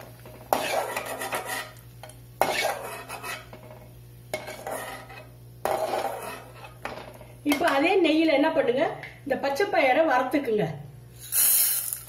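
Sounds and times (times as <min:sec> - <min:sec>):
metal ladle scraping pan: 0:00.5 - 0:01.8, 0:02.4 - 0:07.0.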